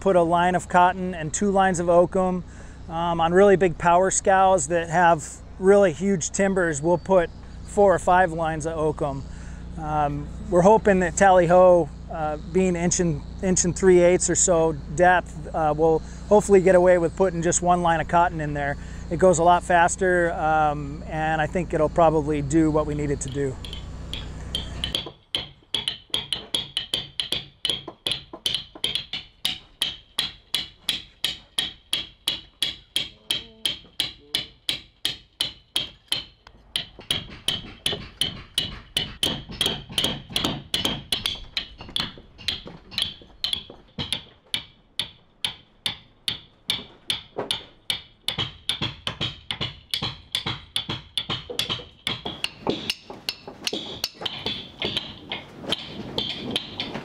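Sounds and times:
mallet striking caulking iron: 23.0s - 57.0s.

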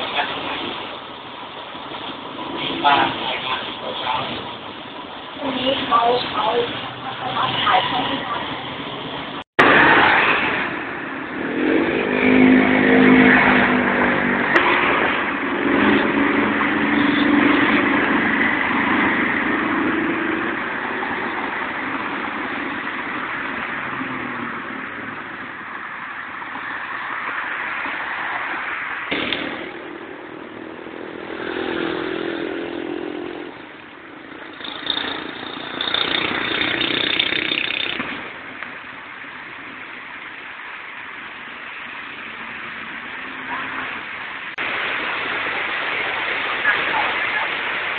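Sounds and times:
vehicle engine and road noise: 0.0s - 47.9s.

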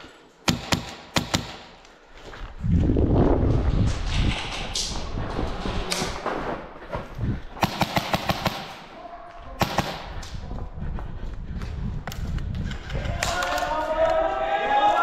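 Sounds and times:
airsoft rifle firing: 0.4s - 1.8s, 7.6s - 8.9s, 9.6s - 10.2s.

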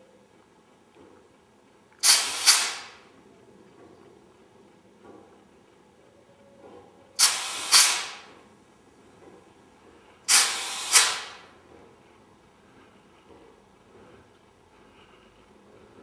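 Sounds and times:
compressed air blasts hissing: 2.0s - 3.0s, 7.2s - 8.4s, 10.3s - 11.5s.

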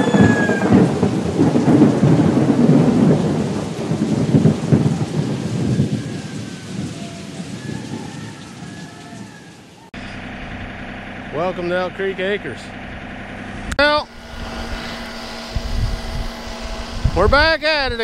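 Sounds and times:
deep crackling rumble: 0.1s - 8.6s, 10.0s - 18.0s
rain-like hiss: 0.1s - 9.9s.

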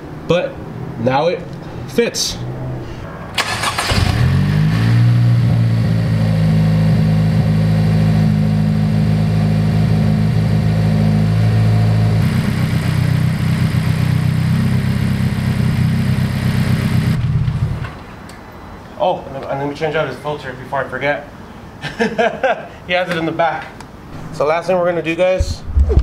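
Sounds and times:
car engine idling: 3.2s - 18.0s.

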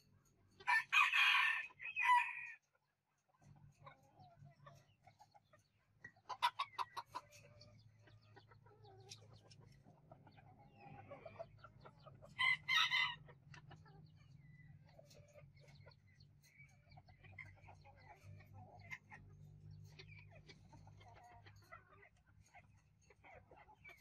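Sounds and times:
chickens clucking: 0.0s - 24.0s
loud chicken call: 0.6s - 2.6s.

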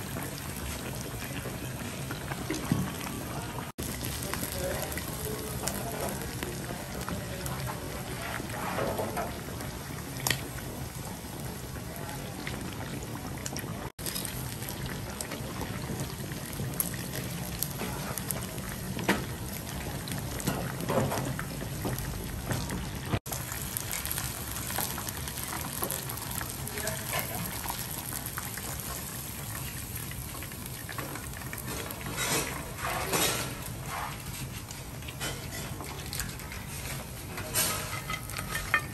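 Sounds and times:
deep-frying in hot oil: 0.0s - 38.9s
chopsticks scraping a pan: 36.6s - 38.9s.

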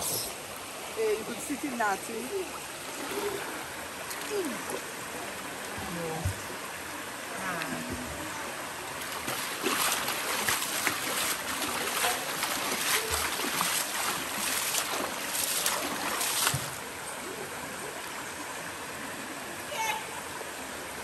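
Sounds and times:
river water rushing over rocks: 0.0s - 21.0s
hands splashing water: 9.0s - 16.8s.

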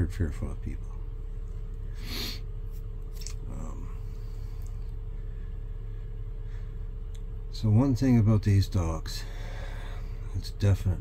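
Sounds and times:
low electrical hum: 0.0s - 11.0s
person sniffing: 1.9s - 2.5s.

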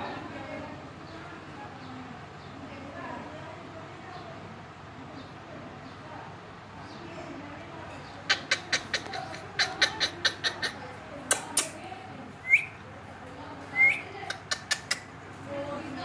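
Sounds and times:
quick sharp clicks: 11.2s - 11.8s, 14.3s - 15.1s.

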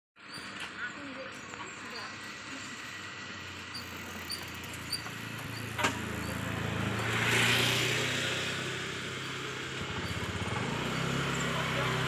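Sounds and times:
vehicle engine passing: 2.4s - 12.0s.

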